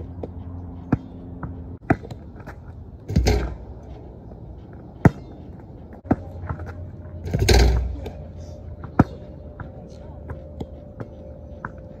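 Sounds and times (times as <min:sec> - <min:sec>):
basketball bouncing: 0:00.2 - 0:02.2.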